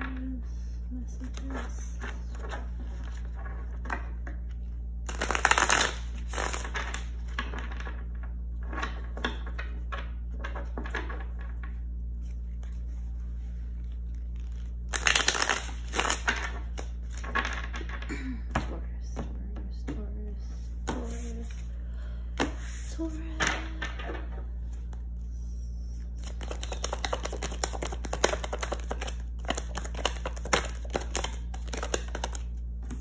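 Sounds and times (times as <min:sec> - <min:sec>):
low hum: 0:00.0 - 0:33.0
cards riffling: 0:05.1 - 0:06.9, 0:14.1 - 0:17.2, 0:26.2 - 0:33.0
card rustles and taps: 0:26.2 - 0:33.0.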